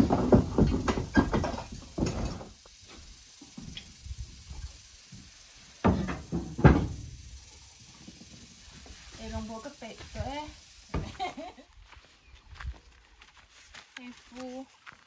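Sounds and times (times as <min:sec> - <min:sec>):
knocks and clatter of objects: 0:00.0 - 0:02.6, 0:05.8 - 0:07.2.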